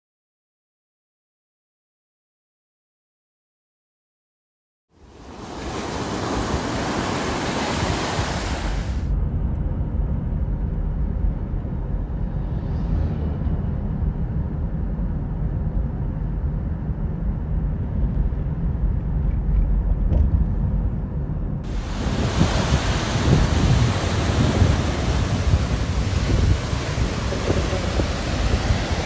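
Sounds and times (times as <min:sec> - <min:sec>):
wind: 0:04.9 - 0:29.0
ocean surf breaking: 0:05.0 - 0:09.1, 0:21.7 - 0:29.0
steady low rumble: 0:05.0 - 0:29.0.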